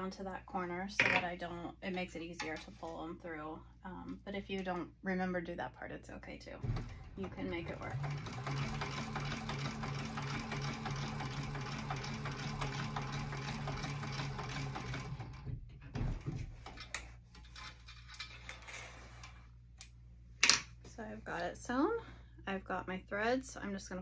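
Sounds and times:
sewing machine running: 0:06.6 - 0:15.5.

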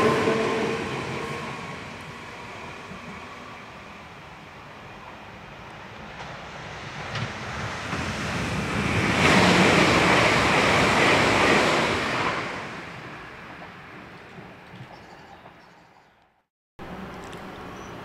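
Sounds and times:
train wheels rushing on rail: 0:00.0 - 0:15.6.

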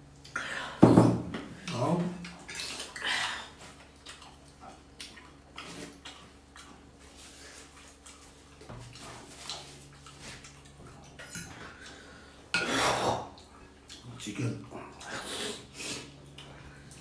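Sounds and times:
utensils clinking on ceramic bowls: 0:11.2 - 0:11.6.

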